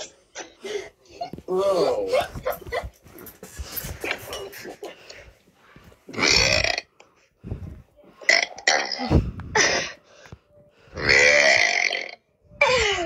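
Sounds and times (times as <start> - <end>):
boy burping: 6.1 - 6.9, 8.2 - 10.0, 11.0 - 13.0.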